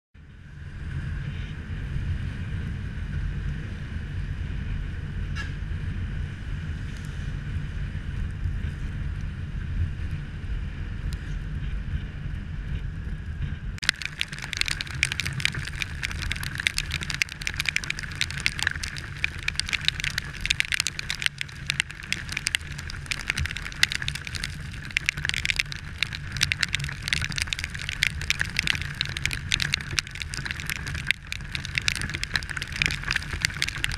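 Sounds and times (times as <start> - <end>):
wind and engine rumble: 0.2 - 33.9
raindrops hitting camera: 13.8 - 33.9.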